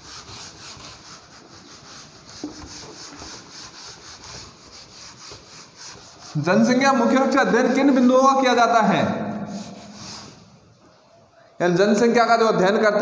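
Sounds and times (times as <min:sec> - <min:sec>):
eraser scrubbing whiteboard: 0:00.0 - 0:10.7.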